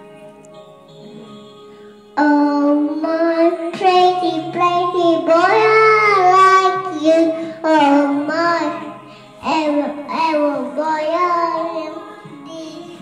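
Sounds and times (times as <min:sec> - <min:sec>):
faint backing track: 0:00.0 - 0:13.0
girl singing a pop ballad: 0:02.1 - 0:13.0.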